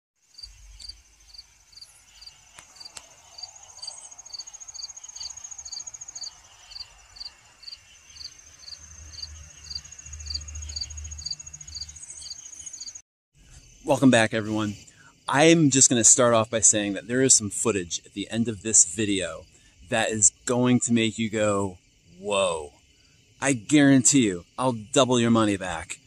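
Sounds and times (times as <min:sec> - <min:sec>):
high-pitched insect trill: 0:00.2 - 0:17.4
cricket chirping: 0:00.2 - 0:26.0.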